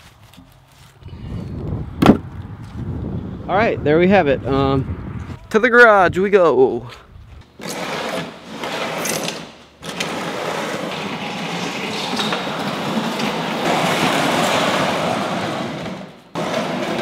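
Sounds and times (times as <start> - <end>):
plastic bin scraping on concrete: 7.5 - 17.0.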